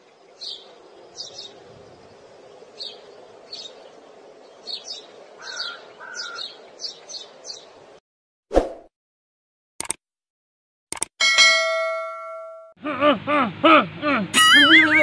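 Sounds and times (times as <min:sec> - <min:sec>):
birds chirping: 0:00.0 - 0:08.0.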